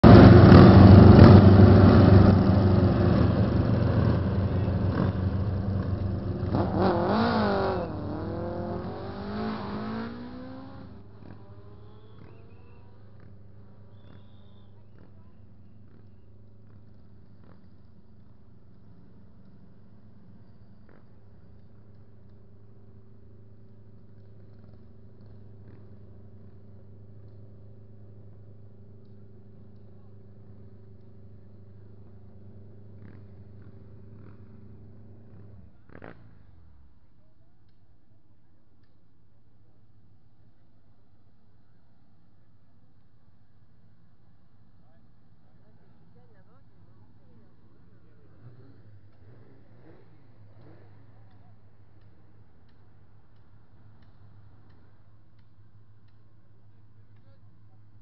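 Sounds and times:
engines idling: 0.0s - 9.4s
racing engine revving: 0.0s - 13.4s, 47.8s - 51.4s.

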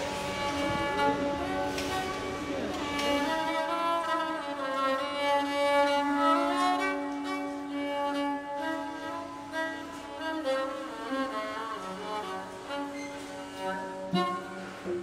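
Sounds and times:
slow bowed strings: 0.0s - 15.0s.

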